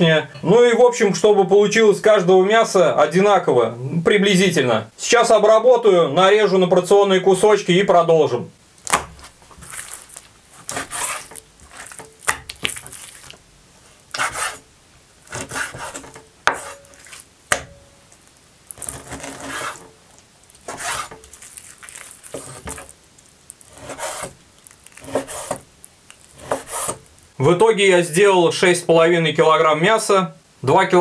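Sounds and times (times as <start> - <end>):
knife slicing raw meat: 8.9 - 13.4, 14.1 - 14.6, 15.3 - 17.8, 18.8 - 19.9, 20.6 - 22.9, 23.7 - 25.6, 26.2 - 27.1.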